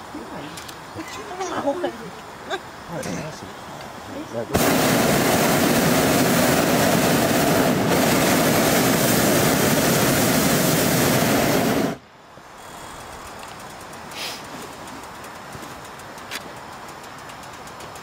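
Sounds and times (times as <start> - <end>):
propane burner firing: 3.0 - 12.0, 13.0 - 18.0.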